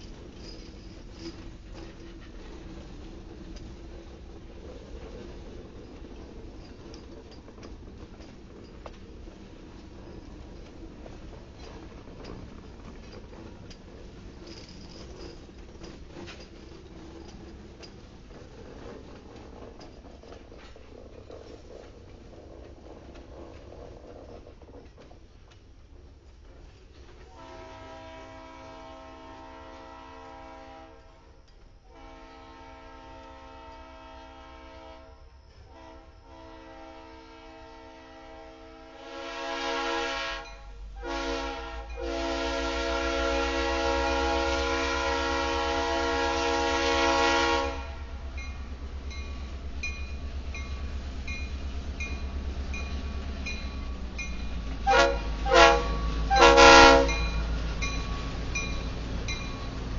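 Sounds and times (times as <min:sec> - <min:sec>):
diesel locomotive rumbling past: 0:00.0 - 0:59.9
locomotive air horn blasts: 0:27.3 - 0:48.2, 0:54.8 - 0:57.4.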